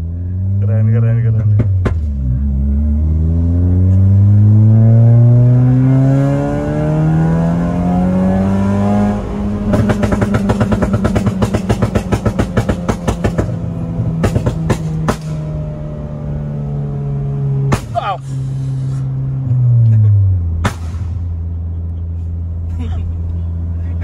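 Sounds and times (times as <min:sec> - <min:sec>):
car engine accelerating hard: 0:00.0 - 0:24.0
exhaust pops and crackles: 0:09.6 - 0:15.5, 0:17.7 - 0:18.1, 0:20.6 - 0:21.4.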